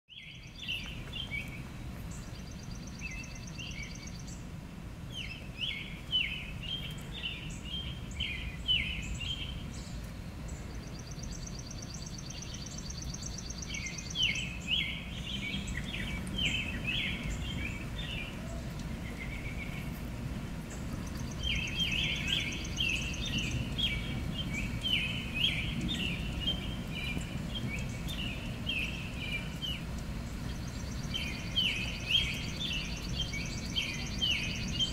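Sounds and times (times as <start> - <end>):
steady low rumble: 0.4 - 34.9
mockingbird singing: 10.6 - 20.0, 20.7 - 34.9.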